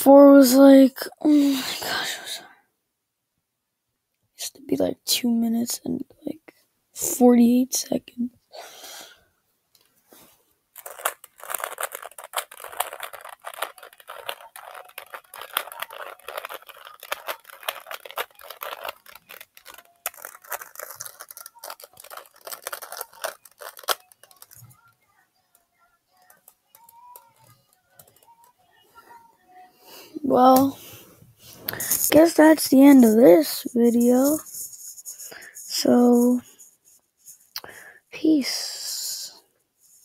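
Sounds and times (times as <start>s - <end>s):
puzzle cube plastic clicks: 10.8s - 24.9s, 25.6s - 28.6s, 31.7s - 36.6s.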